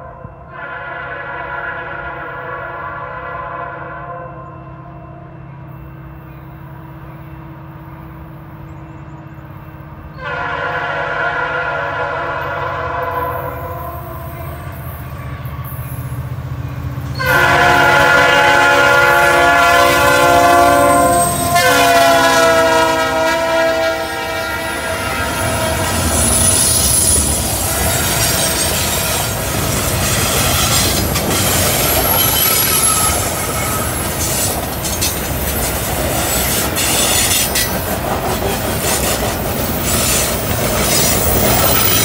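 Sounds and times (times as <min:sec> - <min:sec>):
locomotive horn blasts: 0:00.0 - 0:05.5, 0:10.1 - 0:15.8, 0:17.1 - 0:30.9
locomotive rumble: 0:06.4 - 0:42.0.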